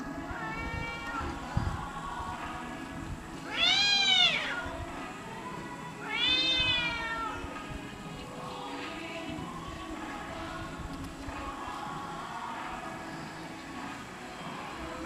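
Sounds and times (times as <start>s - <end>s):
cats yowling: 0.3s - 1.5s, 3.4s - 4.8s, 6.0s - 7.6s.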